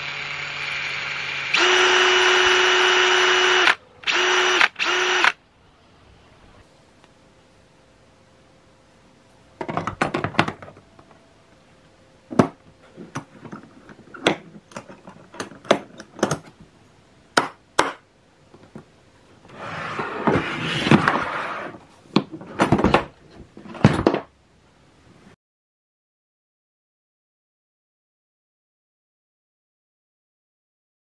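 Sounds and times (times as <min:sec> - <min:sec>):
plastic scraping slide: 0:19.5 - 0:21.8.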